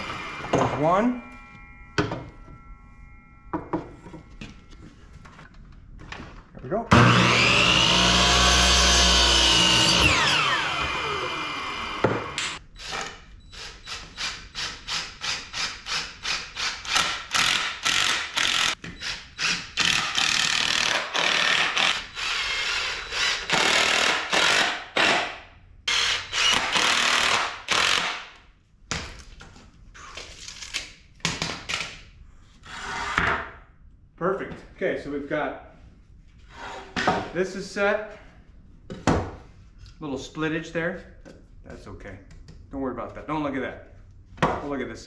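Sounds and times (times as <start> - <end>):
impact driver driving screws: 11.9 - 25.3, 25.9 - 28.3.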